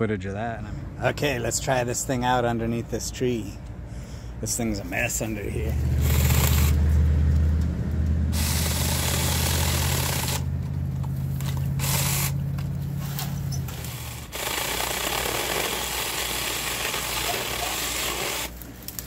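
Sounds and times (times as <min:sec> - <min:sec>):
chainsaw cutting branches: 0:05.6 - 0:19.0.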